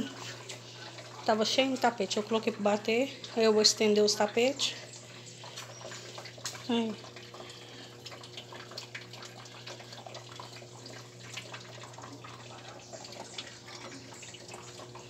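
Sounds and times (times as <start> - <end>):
low motor hum: 0.0 - 15.0
water sloshing in washing machine: 0.0 - 15.0.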